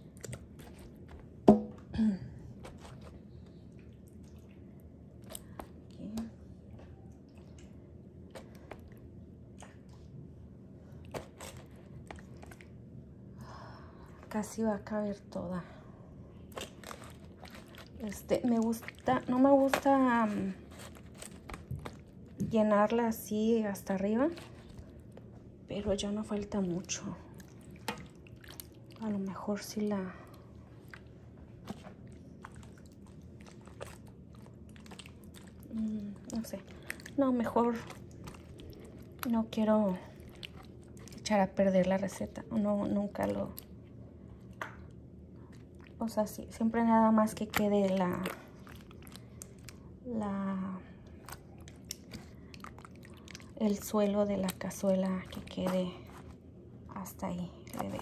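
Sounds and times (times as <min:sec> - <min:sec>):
low room hum: 0:00.0 - 0:58.0
wet squishes of raw meat handled: 0:11.0 - 0:12.9, 0:16.4 - 0:58.0.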